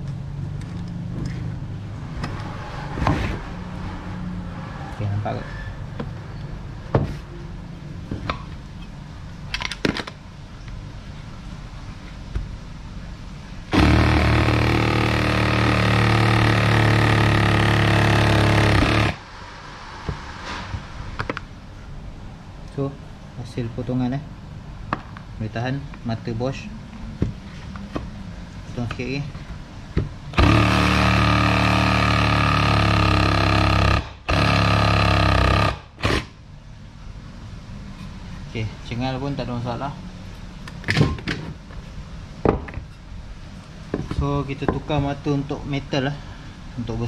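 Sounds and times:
reciprocating saw cutting wood: 13.7 - 19.2, 30.4 - 36.4.

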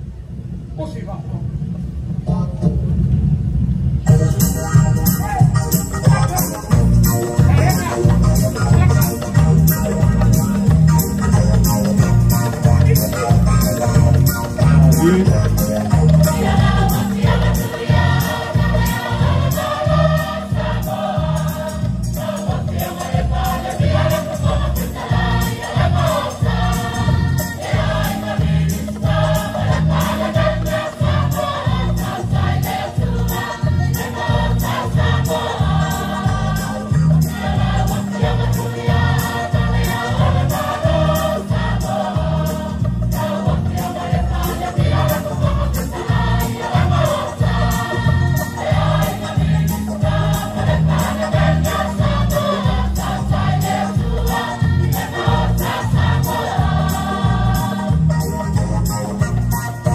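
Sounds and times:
steady repeating beat: 4.1 - 59.9
choir singing: 11.9 - 58.8.

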